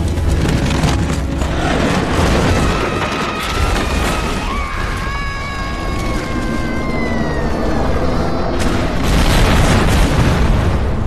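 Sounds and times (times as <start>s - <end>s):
crashing falling debris: 0.0s - 6.6s.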